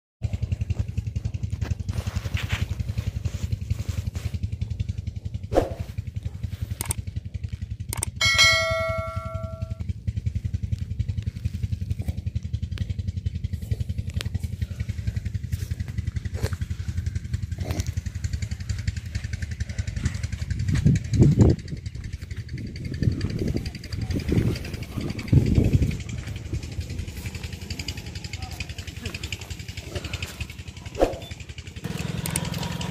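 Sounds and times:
sharp clicks: 6.8s - 7.0s, 7.9s - 8.2s, 31.9s - 32.6s
low mechanical throb: 7.8s - 11.3s, 12.0s - 32.9s
metallic bell ding: 8.1s - 9.8s.

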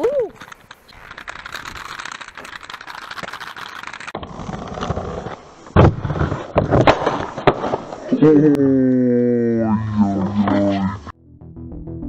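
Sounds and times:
skate wheels rolling over bricks: 0.0s - 8.5s.

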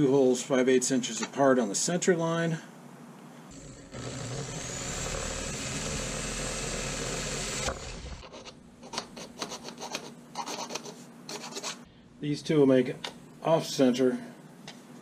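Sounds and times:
cordless drill boring plastic: 3.5s - 8.3s.

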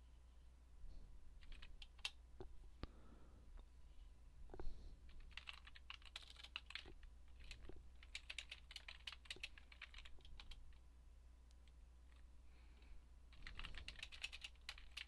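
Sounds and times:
steady low hum: 0.0s - 15.0s
typing on computer keyboard: 1.4s - 2.2s, 5.1s - 10.7s, 13.3s - 15.0s.

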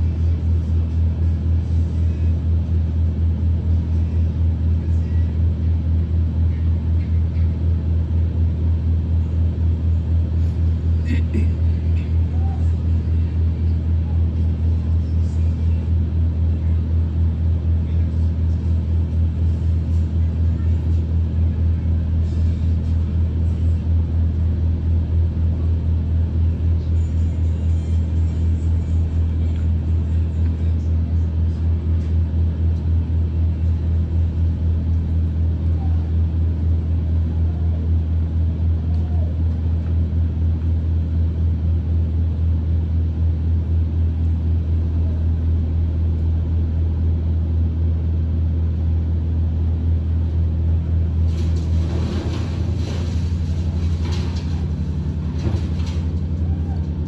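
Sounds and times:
large engine pulsing hum: 0.0s - 57.0s
harsh crackling and rattling: 51.1s - 57.0s.

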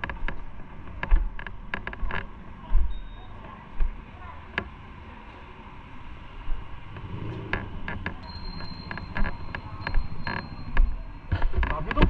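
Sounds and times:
low rumble: 5.8s - 11.2s.

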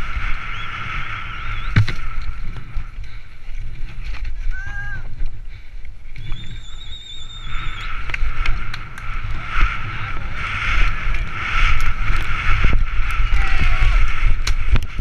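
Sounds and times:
wind rumble on microphone: 0.0s - 15.0s
warbling whistle: 0.3s - 1.8s, 6.2s - 8.0s
bike clicks and rattles: 1.8s - 15.0s.

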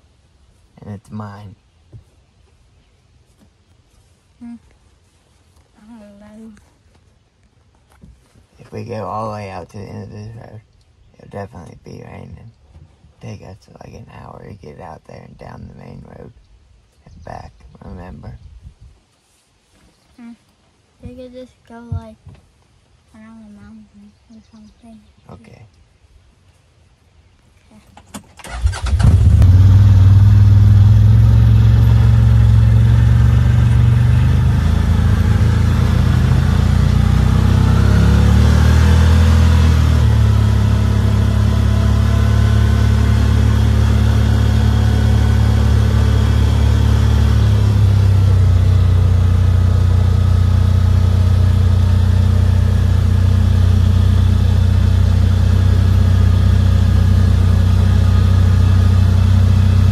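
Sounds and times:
engine running while driving: 28.4s - 59.9s.

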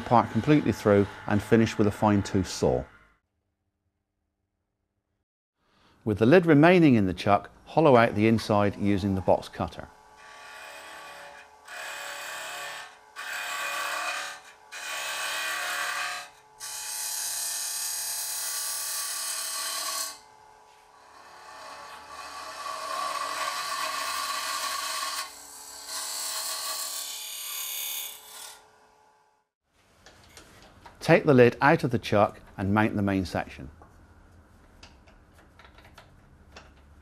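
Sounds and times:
cutter scraping through wood: 0.0s - 3.1s
lathe hum: 0.0s - 3.1s, 8.8s - 17.2s, 18.3s - 28.6s.

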